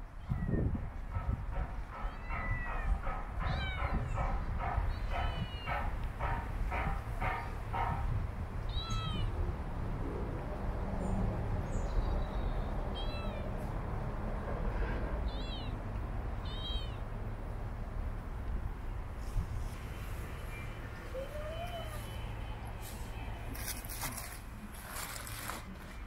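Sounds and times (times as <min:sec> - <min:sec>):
kitten meowing: 0:08.7 - 0:09.3, 0:12.9 - 0:13.5, 0:15.3 - 0:15.8, 0:16.4 - 0:17.0.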